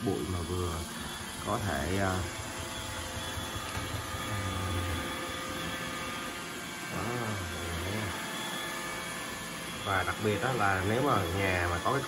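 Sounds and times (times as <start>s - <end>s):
robot vacuum whirring: 0.0s - 12.0s
thin whining tones: 0.0s - 12.0s.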